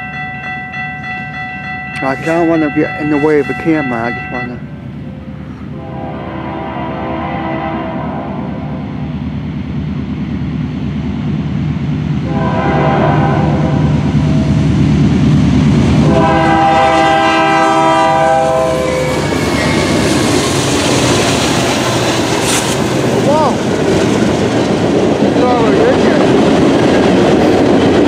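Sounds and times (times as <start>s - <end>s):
diesel locomotive rumble: 0.0s - 28.0s
train air horn blasts: 5.4s - 8.8s, 12.2s - 14.5s, 16.0s - 20.0s.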